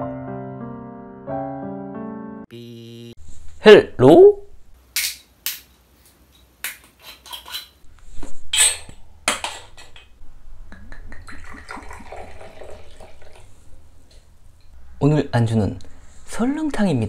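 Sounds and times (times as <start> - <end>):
liquid pouring into shot glass: 11.2 - 13.6.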